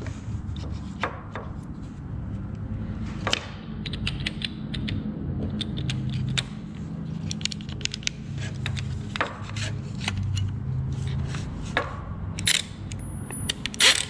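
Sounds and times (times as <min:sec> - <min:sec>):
plastic and metal parts clicking: 0:03.3 - 0:10.6, 0:12.3 - 0:14.0.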